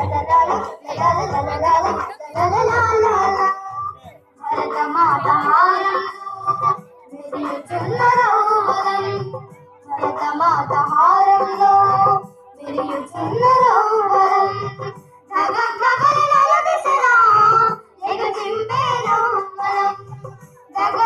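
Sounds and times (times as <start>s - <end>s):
steady drumbeat: 0.0s - 6.8s
child singing: 0.0s - 21.0s.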